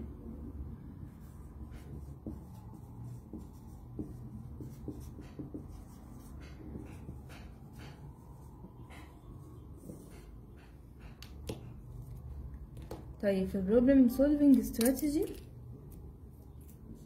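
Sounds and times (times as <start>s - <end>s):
marker squeaking on whiteboard: 1.2s - 11.8s.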